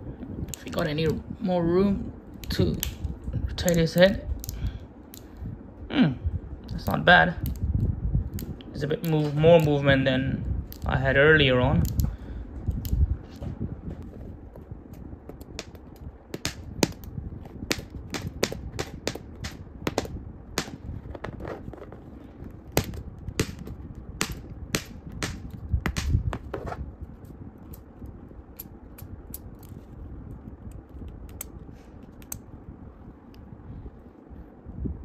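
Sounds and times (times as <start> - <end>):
soft handling noise: 20.7 - 23.0.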